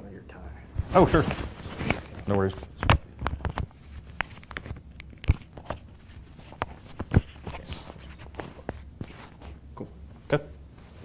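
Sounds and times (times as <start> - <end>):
microphone handling rustling and clicking: 0.8 - 9.6.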